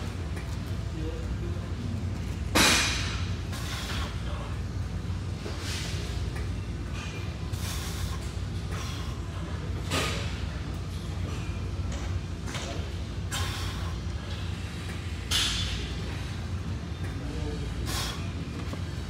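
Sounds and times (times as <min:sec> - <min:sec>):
low hum of fans: 0:00.0 - 0:19.0.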